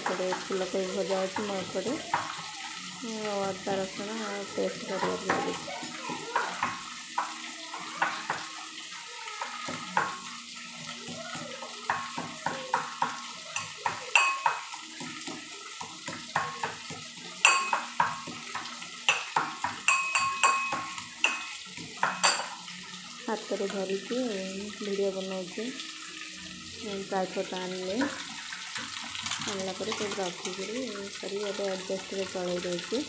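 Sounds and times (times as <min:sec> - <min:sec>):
spoon scraping metal pan: 0:27.4 - 0:31.2.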